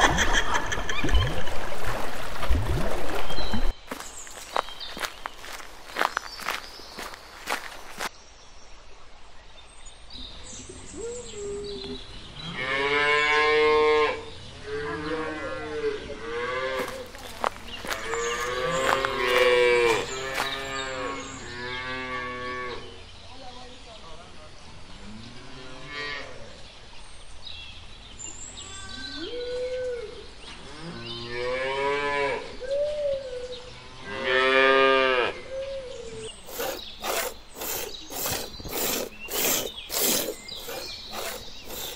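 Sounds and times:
cows mooing: 0:17.8 - 0:22.4.

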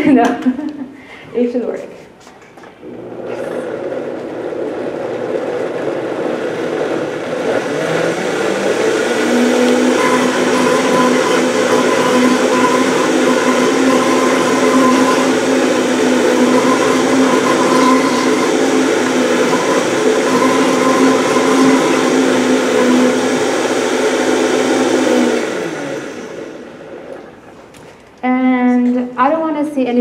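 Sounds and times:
blender motor whirring: 0:02.8 - 0:27.8.

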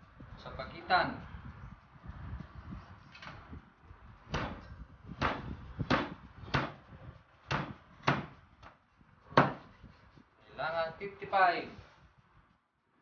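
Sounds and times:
knife chopping on cutting board: 0:09.4 - 0:09.6.

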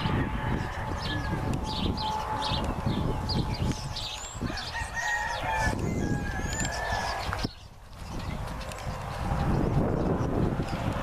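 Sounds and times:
rooster crowing: 0:00.0 - 0:02.2, 0:04.4 - 0:07.5
chickens chirping: 0:00.0 - 0:11.0.

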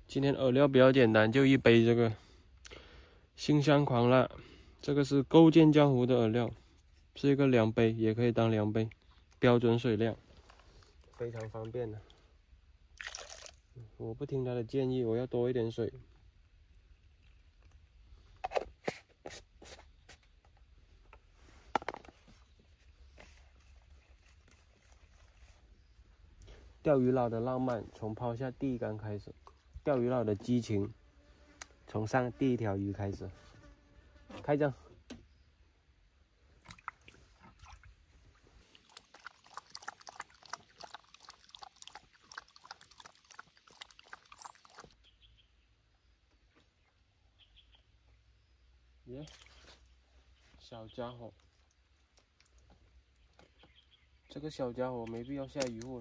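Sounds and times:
plastic cup and bottle handling: 0:17.1 - 0:25.6
dog lapping water: 0:38.6 - 0:45.0.

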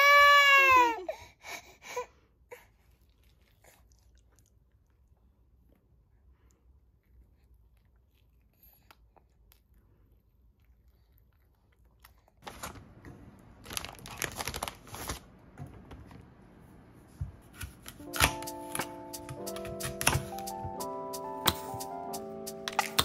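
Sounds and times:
plastic bag crinkling: 0:12.4 - 0:15.3
knife cutting apple on board: 0:17.2 - 0:20.5.

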